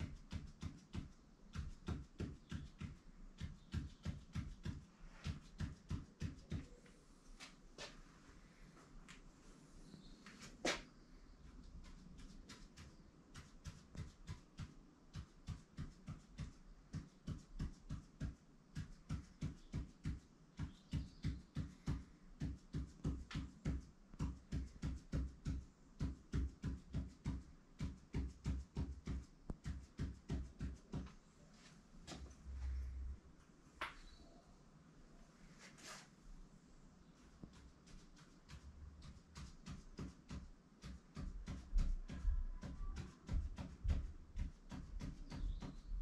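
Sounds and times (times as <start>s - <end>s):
marker tapping on paper: 0.0s - 6.8s, 11.7s - 31.2s, 37.4s - 46.0s.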